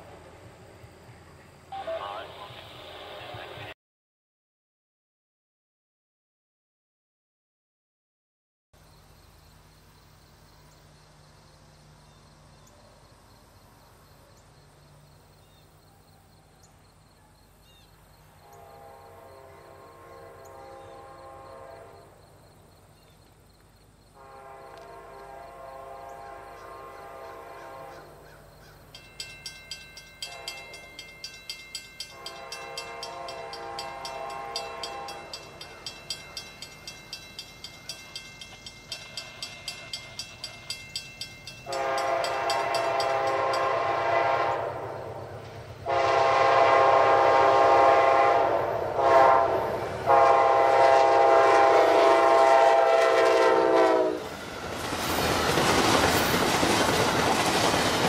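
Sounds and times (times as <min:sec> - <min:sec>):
locomotive horn blasts: 0:18.4 - 0:22.1, 0:24.2 - 0:28.2, 0:30.2 - 0:31.0, 0:32.0 - 0:36.4, 0:41.6 - 0:54.3
crossing warning bell ringing: 0:28.8 - 0:44.0.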